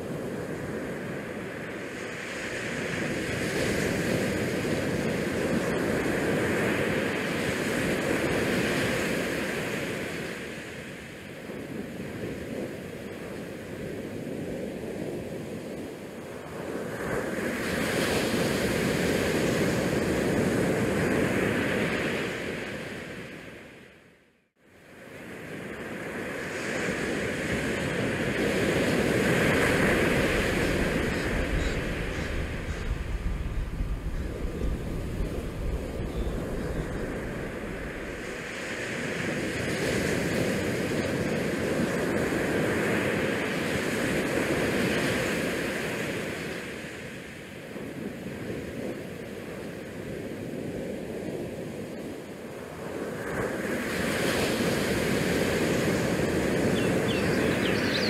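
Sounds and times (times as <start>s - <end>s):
wind rushing over microphone: 25.2s - 58.0s.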